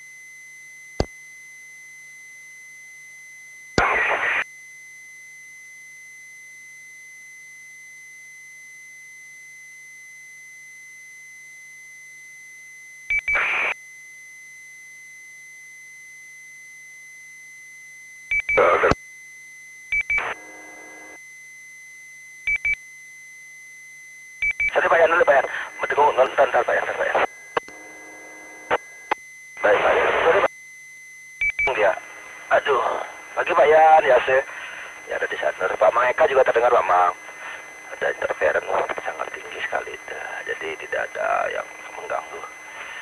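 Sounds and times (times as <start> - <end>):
beep pips: 18.3 - 18.6
multi-tone beep: 18.3 - 18.7, 22.5 - 22.8, 31.4 - 31.8
static squelch bursts: 18.6 - 19.0, 20.2 - 21.2, 24.7 - 28.9, 29.6 - 30.5, 31.7 - 41.0.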